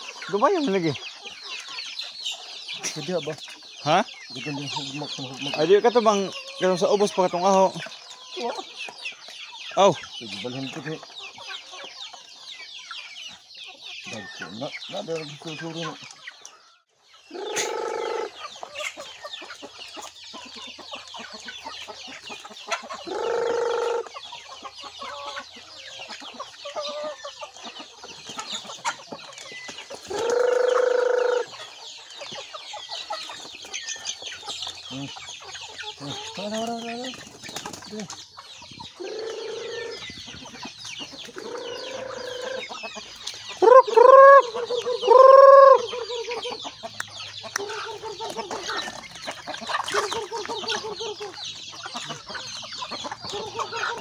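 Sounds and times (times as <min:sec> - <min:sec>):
chickens clucking and calling: 0:00.0 - 0:54.0.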